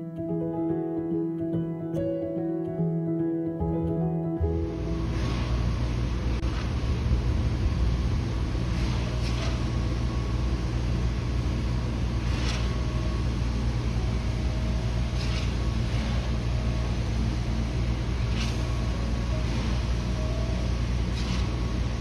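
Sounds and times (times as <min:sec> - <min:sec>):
motor-like rumble with hum: 0:04.4 - 0:22.0.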